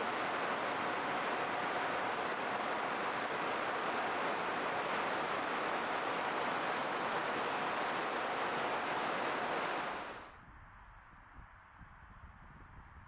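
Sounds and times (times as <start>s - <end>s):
river rapids rushing: 0.0s - 10.3s.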